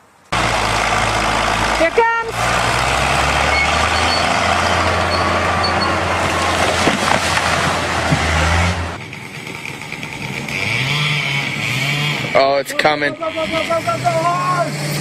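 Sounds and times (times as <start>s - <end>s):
diesel engine droning: 0.3s - 15.0s
tree crashing onto house: 6.0s - 9.0s.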